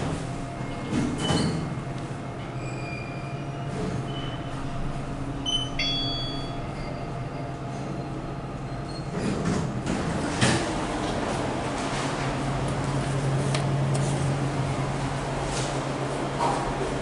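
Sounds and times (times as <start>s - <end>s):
elevator motor hum: 9.7s - 17.0s.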